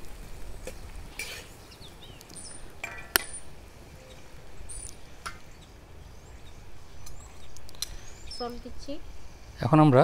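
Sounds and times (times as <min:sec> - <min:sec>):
chicken sizzling in oil: 0:00.0 - 0:03.5
birds chirping: 0:00.6 - 0:10.0.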